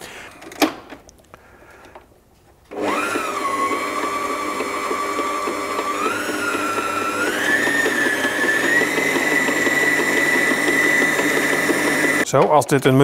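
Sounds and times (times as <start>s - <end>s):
food processor motor whining: 2.7s - 12.2s.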